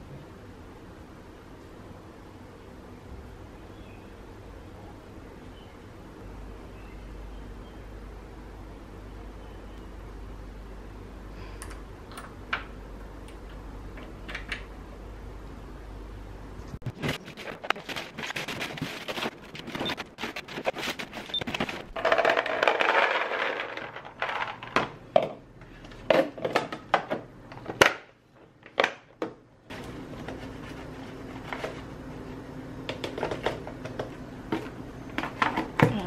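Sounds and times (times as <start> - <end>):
plastic packets rustling and clattering: 16.8 - 25.0.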